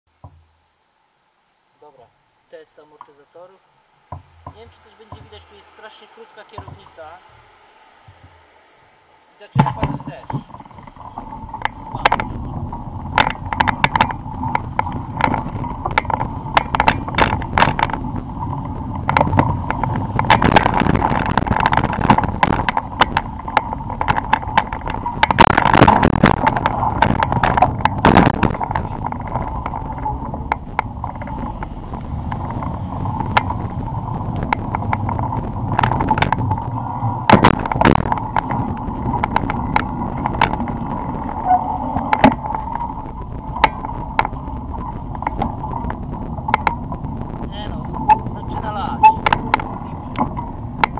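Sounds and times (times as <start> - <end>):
bicycle rattling over paving: 4.1 - 50.9
bicycle frame knocking: 9.6 - 47.2, 48.0 - 50.9.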